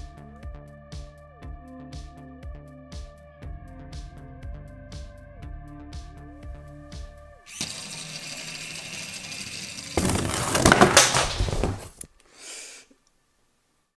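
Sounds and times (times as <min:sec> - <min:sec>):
electric gear motors running: 0:07.5 - 0:10.2
handling noise: 0:10.0 - 0:12.1.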